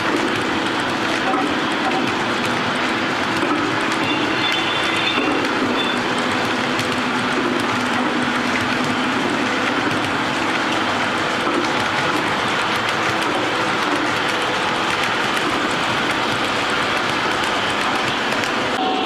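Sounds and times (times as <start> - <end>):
faint rapid clicking: 0.0 - 18.8
metal wheels rolling on rail: 0.0 - 19.0.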